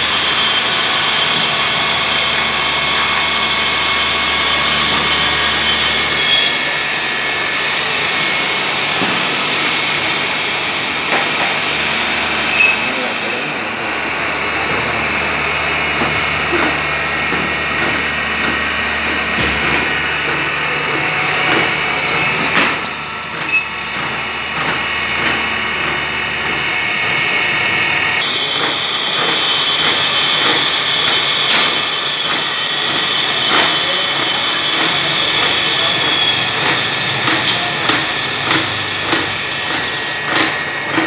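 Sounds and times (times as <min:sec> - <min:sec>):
milling machine whine: 0:00.0 - 0:41.0
higher machine tone: 0:11.7 - 0:27.3.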